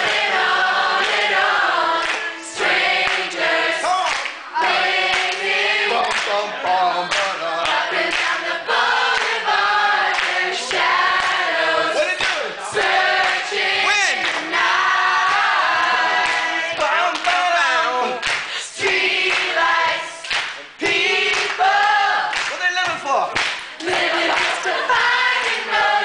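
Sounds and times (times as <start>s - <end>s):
group of people singing: 0.0s - 22.6s, 23.4s - 26.0s
hand clapping: 2.0s - 2.3s, 3.0s - 6.5s, 7.1s - 8.4s, 9.0s - 11.5s, 12.1s - 14.6s, 15.2s - 25.8s.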